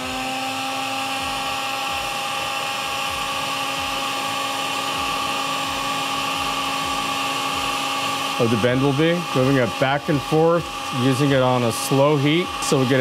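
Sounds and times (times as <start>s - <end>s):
heat gun whining: 0.0s - 13.0s.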